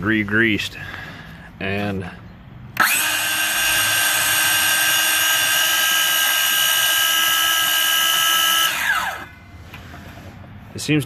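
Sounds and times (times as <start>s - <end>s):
cordless saw whining: 2.8s - 10.4s.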